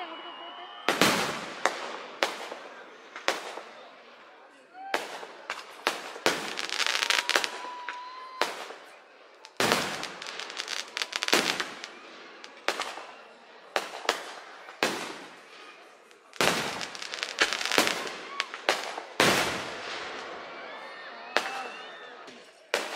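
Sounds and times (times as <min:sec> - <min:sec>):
glittering firework crackle: 0:05.0 - 0:20.4
firework shells bursting: 0:05.4 - 0:13.2, 0:16.1 - 0:20.3.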